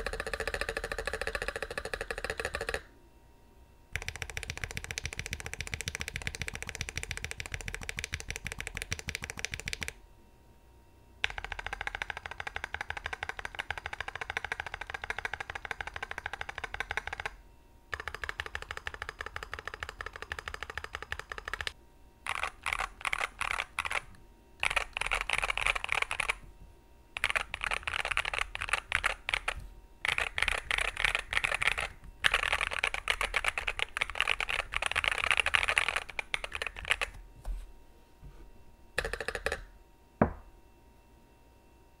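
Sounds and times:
fast typing on mechanical keyboard: 0.0s - 2.9s, 4.0s - 10.0s, 11.2s - 26.5s, 27.2s - 37.2s, 39.0s - 39.7s.

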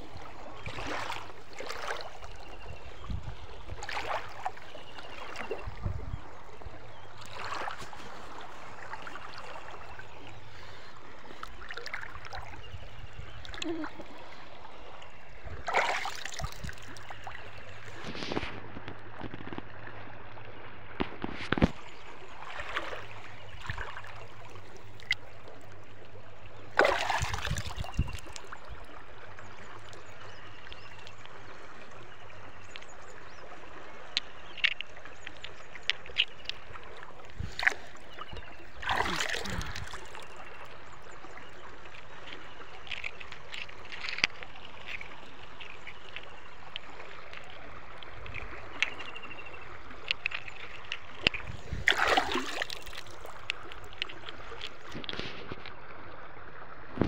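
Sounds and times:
river water flowing: 0.0s - 57.0s
hand splashing in water: 15.6s - 17.0s, 26.8s - 28.5s, 38.8s - 40.3s, 51.7s - 54.8s
wet stones clicking: 23.6s - 25.9s, 26.8s - 28.6s, 34.0s - 55.3s.

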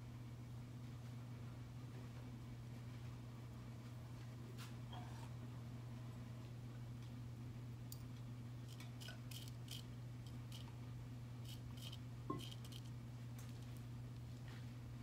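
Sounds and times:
steady low hum: 0.0s - 15.0s
small tools clicking and tapping: 11.5s - 13.6s.

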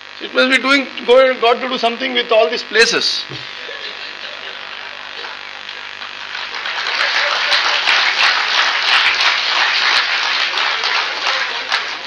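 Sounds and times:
audience applauding: 4.5s - 12.0s.

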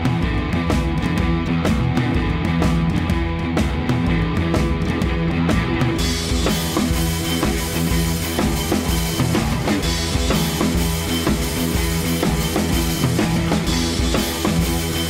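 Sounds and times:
music with drum-kit beat: 0.0s - 15.0s.

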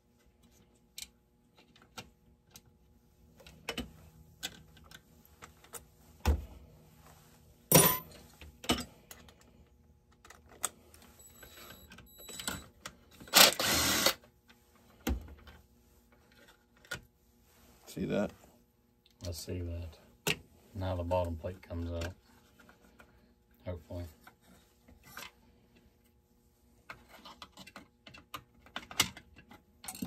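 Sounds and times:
tools and parts clicking and knocking: 7.7s - 9.4s, 26.9s - 30.0s.

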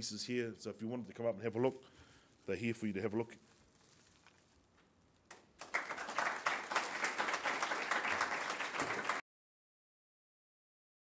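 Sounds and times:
audience applauding: 5.3s - 9.2s.

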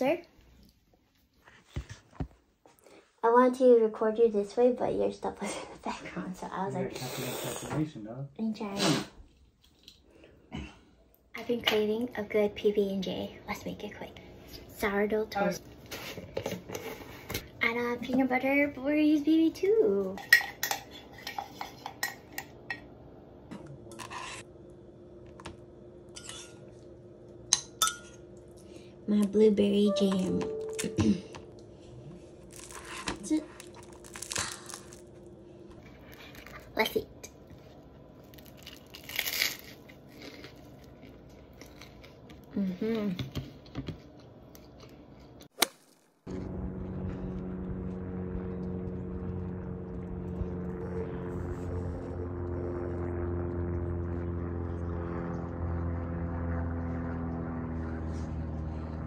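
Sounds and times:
airplane droning overhead: 10.0s - 42.5s, 46.2s - 59.0s.

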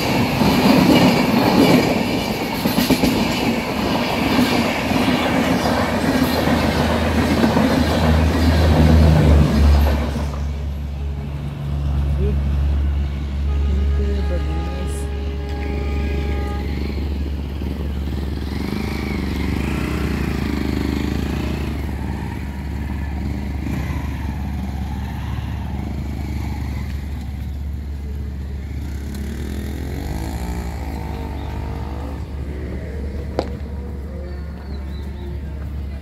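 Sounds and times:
motorcycle engine running: 16.3s - 35.0s.

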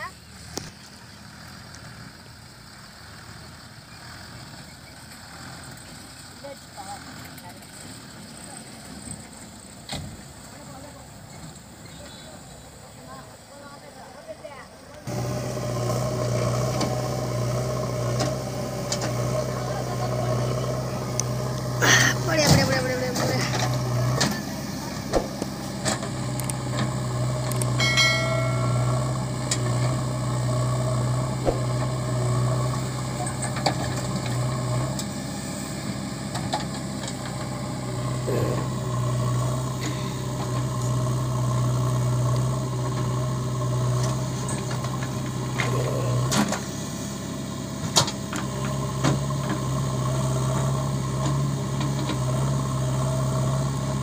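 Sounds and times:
diesel engine running under load: 0.0s - 14.1s, 15.0s - 54.0s.

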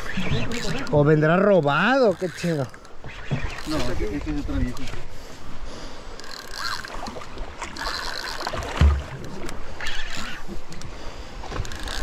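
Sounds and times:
water sloshing against boat hull: 1.7s - 12.0s
dull low thump: 8.6s - 9.3s.

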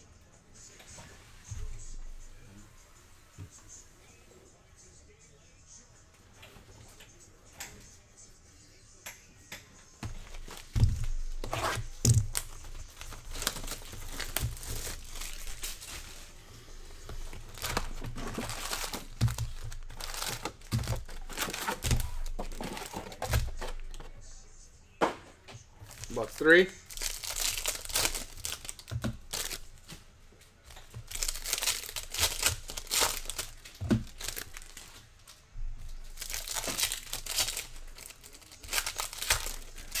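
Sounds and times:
foil packs crinkling and tearing: 10.2s - 16.3s, 17.0s - 24.1s, 25.8s - 29.9s, 30.9s - 35.0s, 36.0s - 40.0s.

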